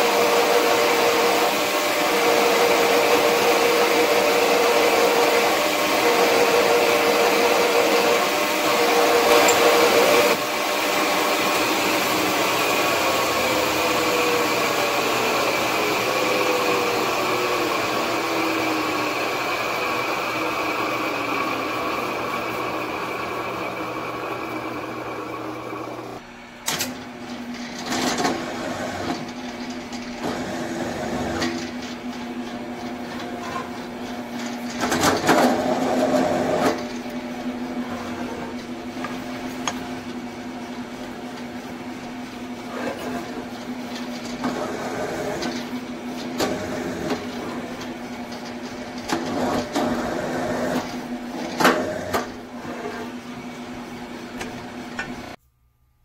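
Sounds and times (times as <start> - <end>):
drill press running: 0.0 - 55.4
metal cutting and scraping: 0.7 - 24.8.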